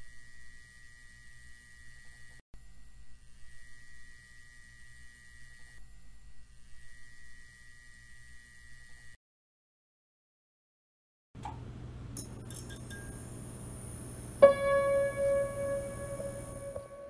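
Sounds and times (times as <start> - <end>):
low electrical hum: 11.4 - 17.0
thin high whine: 12.9 - 17.0.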